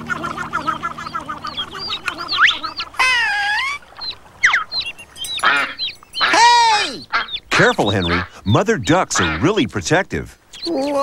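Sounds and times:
ducklings peeping: 0.0s - 11.0s.

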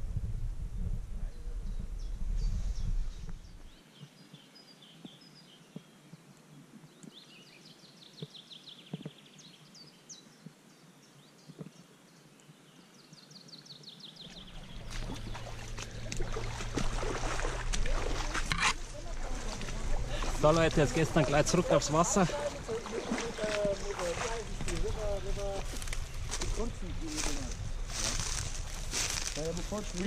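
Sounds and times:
low rumble: 0.0s - 3.7s, 14.3s - 29.4s
small birds trilling: 13.3s - 30.0s
rustling through reeds and brush: 14.3s - 30.0s.

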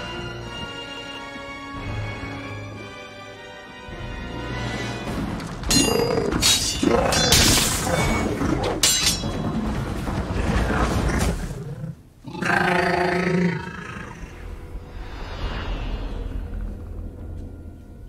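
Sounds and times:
film score: 0.0s - 18.0s
creature growling and roaring: 5.9s - 8.8s, 10.3s - 14.5s
metallic blade clangs: 8.8s - 9.4s.

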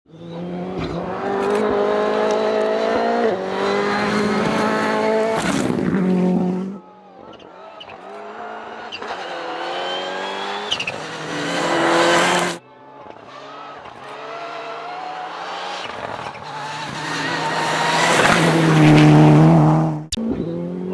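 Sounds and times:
rally car engines revving: 0.1s - 20.9s.

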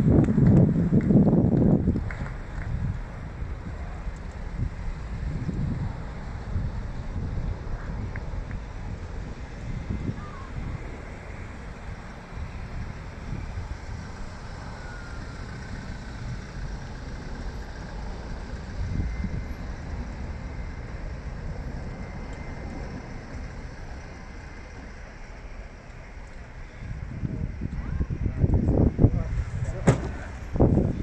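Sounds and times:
distant jet engines roaring: 0.0s - 31.0s
wind buffeting microphone: 0.0s - 31.0s.

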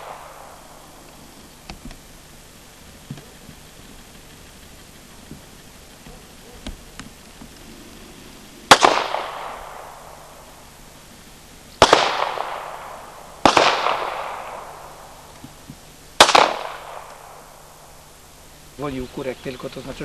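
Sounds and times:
pistol shots with echo: 0.0s - 1.0s, 8.7s - 10.6s, 11.8s - 15.3s, 16.2s - 17.9s.

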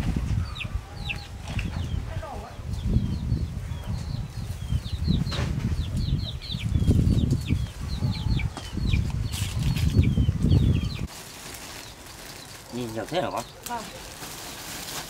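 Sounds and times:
chicks peeping: 0.0s - 11.1s.

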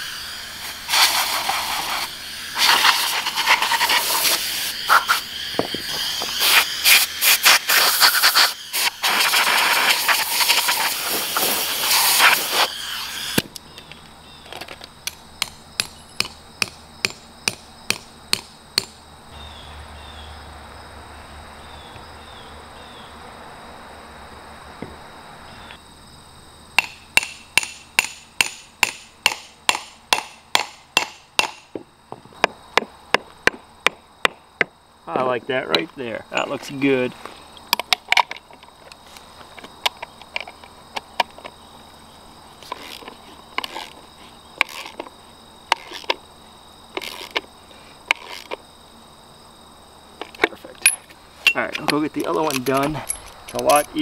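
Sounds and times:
loud hiss: 0.0s - 13.6s.

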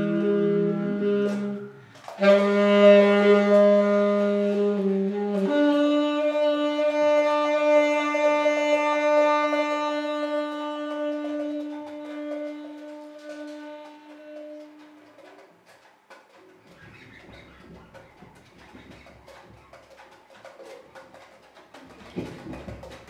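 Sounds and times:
saxophone playing low notes: 0.0s - 15.5s.

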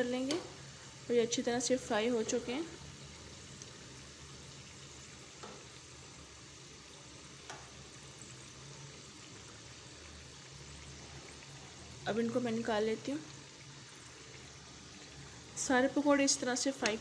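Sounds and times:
oil sizzling: 0.0s - 17.0s.

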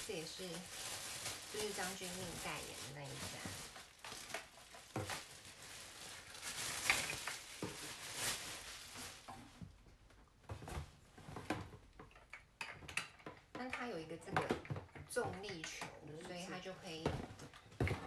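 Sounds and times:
plastic bag crinkling: 0.0s - 9.8s.

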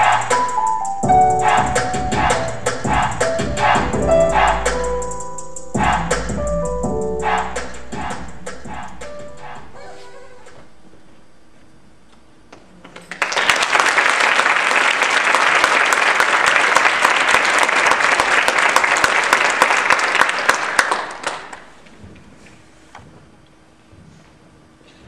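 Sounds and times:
audience applauding: 13.0s - 21.8s.

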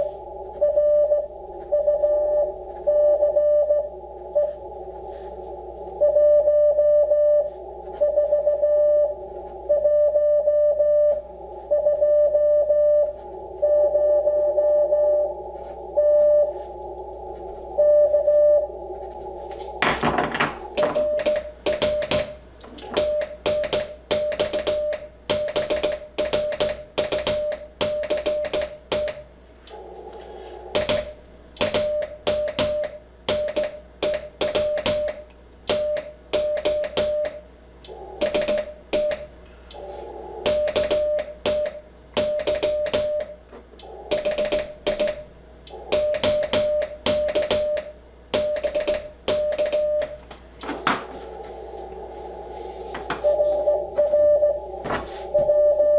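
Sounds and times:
receiver hiss: 0.0s - 55.9s
morse code beeps: 0.6s - 4.6s, 6.0s - 16.6s, 17.8s - 18.7s, 20.8s - 22.3s, 31.8s - 43.4s, 44.1s - 50.2s, 53.2s - 55.9s
telegraph key clicks: 43.8s - 49.9s.

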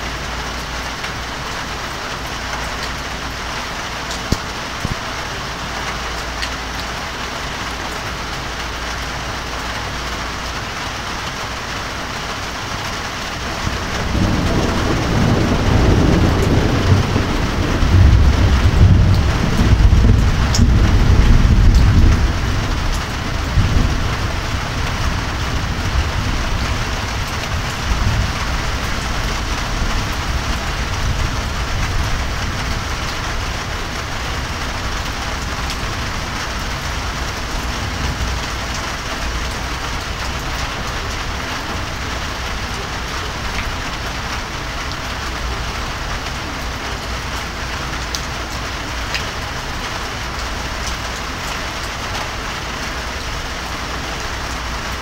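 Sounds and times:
steady rain falling: 0.0s - 55.0s
low thunder rumble: 13.4s - 46.8s.

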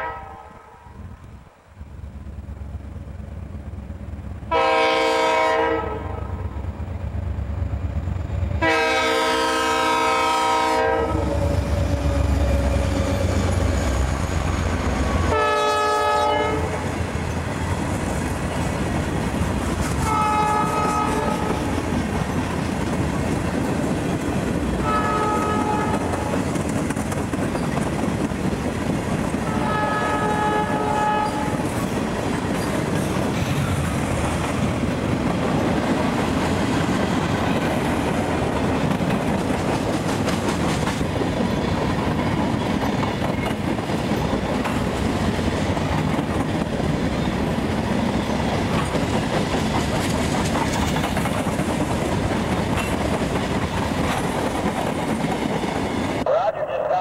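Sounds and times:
train horn blasts: 0.0s - 1.0s, 4.5s - 6.4s, 8.6s - 13.4s, 15.2s - 16.8s, 20.0s - 21.8s, 24.8s - 26.3s, 29.4s - 31.6s
train rumbling by: 0.0s - 57.0s
wheels clicking over rail joints: 17.2s - 55.8s.

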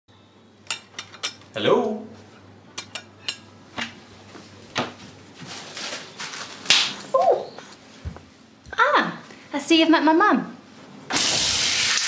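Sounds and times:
crockery and cutlery clinking: 0.6s - 1.5s, 2.7s - 4.0s.

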